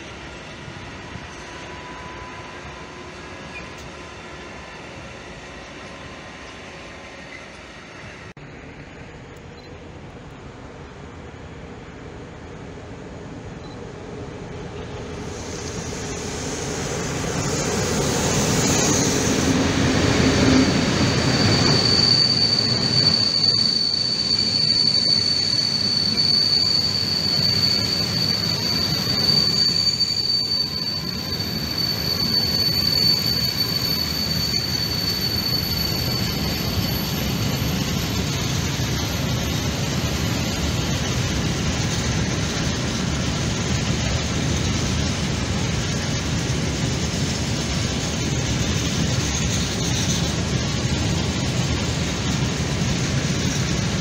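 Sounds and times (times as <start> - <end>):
train wheels rumbling on rail: 0.0 - 54.0
high squeal from wagons: 15.1 - 43.0.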